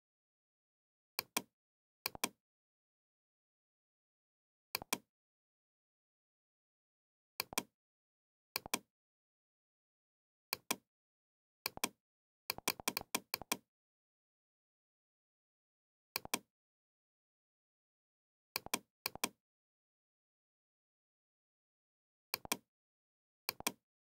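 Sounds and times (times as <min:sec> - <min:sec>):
computer mouse clicking: 0:04.8 - 0:05.0, 0:08.6 - 0:08.9, 0:11.7 - 0:13.6, 0:16.2 - 0:16.4, 0:22.4 - 0:22.6, 0:23.5 - 0:23.8.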